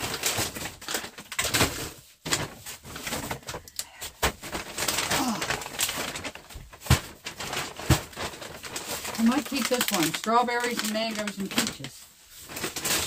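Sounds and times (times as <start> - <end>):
packages knocking against freezer: 0.0 - 11.9, 12.5 - 13.0
bags of frozen food rustling: 0.0 - 13.0.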